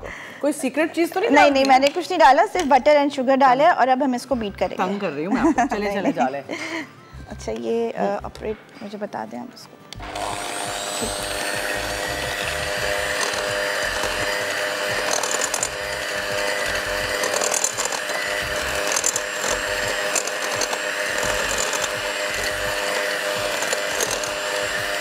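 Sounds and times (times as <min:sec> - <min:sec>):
electric hand mixer running: 0:10.0 - 0:25.0.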